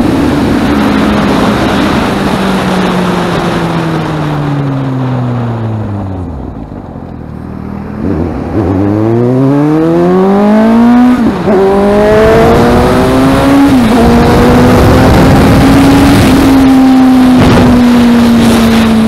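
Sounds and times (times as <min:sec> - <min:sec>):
motorcycle engine accelerating: 0:00.0 - 0:19.0.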